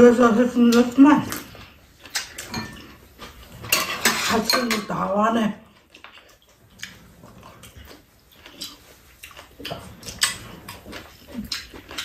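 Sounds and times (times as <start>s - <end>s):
chewing and mouth noises: 5.7s - 12.0s.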